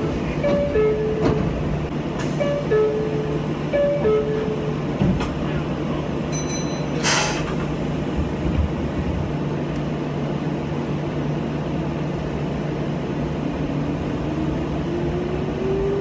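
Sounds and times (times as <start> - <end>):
electric train hum: 0.0 - 16.0
short hiss of air: 7.0 - 7.6.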